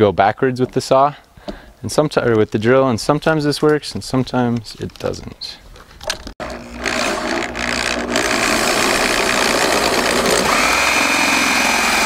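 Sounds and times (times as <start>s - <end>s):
power drill hole saw grinding plastic: 6.4s - 12.0s.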